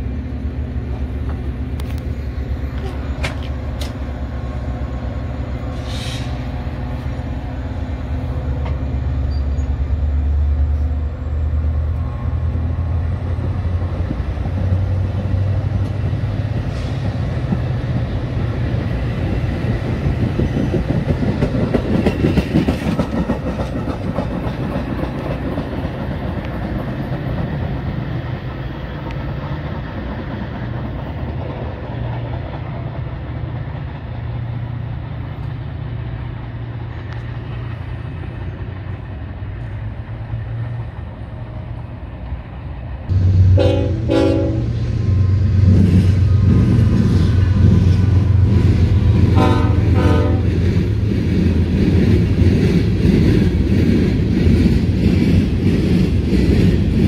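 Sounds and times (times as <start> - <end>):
train engine droning: 0.0 - 57.0
train wheels clattering over rails: 13.0 - 39.8, 45.2 - 57.0.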